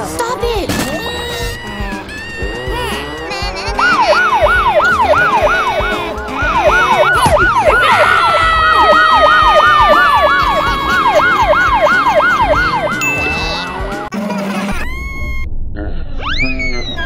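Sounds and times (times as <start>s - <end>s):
siren yelp rising and falling: 3.8s - 14.1s
long held siren tone: 4.2s - 5.9s, 8.9s - 13.6s.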